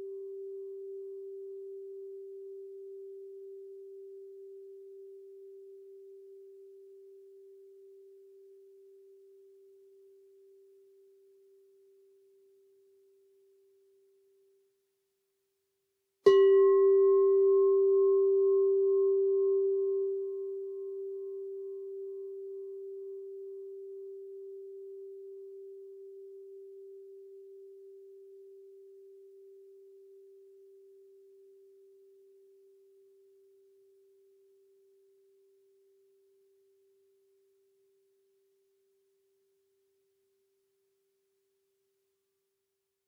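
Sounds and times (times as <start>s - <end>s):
singing bowl ringing: 16.3s - 33.1s.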